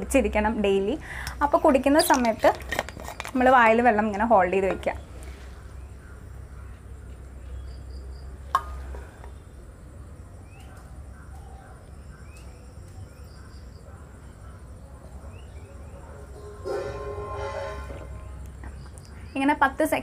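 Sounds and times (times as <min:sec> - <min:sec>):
steady low hum: 0:03.7 - 0:19.8
faint high chirping: 0:04.8 - 0:19.6.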